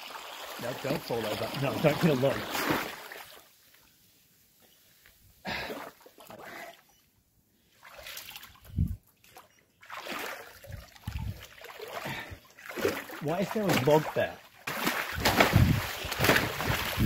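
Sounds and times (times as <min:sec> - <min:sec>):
bike tyres splashing through water: 0:11.2 - 0:17.0.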